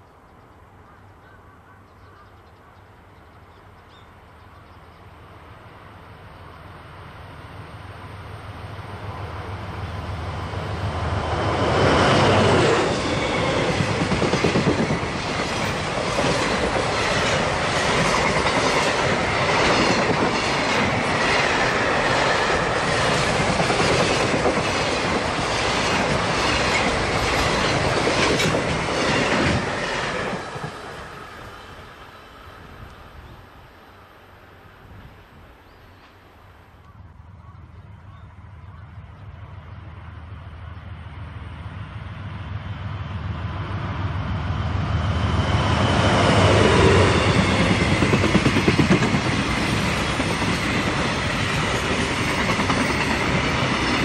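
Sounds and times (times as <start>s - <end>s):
diesel locomotive passing: 2.9s - 54.0s
train wheels clickety-clack: 11.6s - 31.2s, 45.8s - 54.0s.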